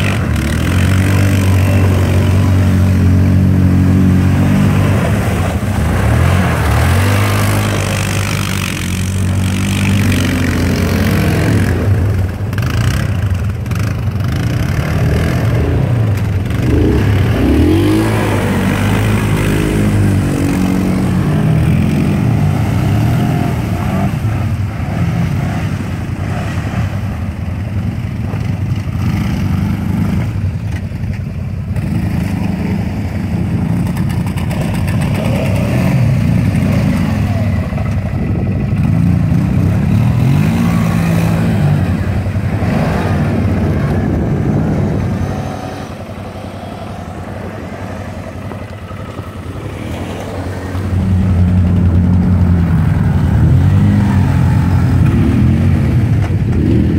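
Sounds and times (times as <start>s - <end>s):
atv engines revving: 0.0s - 56.9s
water splashing: 0.1s - 13.1s.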